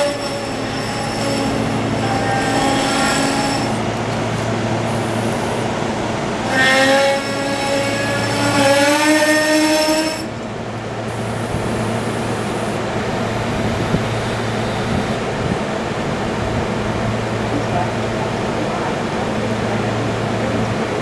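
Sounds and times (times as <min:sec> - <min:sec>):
loud multi-tone pitched whine: 0:00.0 - 0:18.1
train equipment hum and whir: 0:00.0 - 0:21.0.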